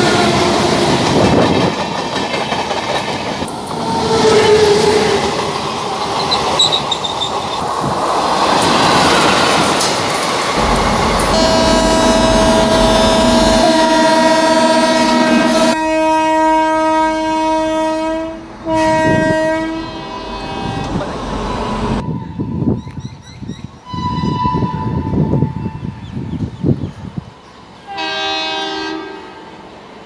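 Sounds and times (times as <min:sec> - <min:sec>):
train horn: 0:00.0 - 0:00.9, 0:10.6 - 0:22.7, 0:23.9 - 0:26.0, 0:27.8 - 0:29.7
train passing with rumble: 0:00.0 - 0:30.0
wheels clattering over rail joints: 0:01.0 - 0:03.9, 0:05.4 - 0:11.0.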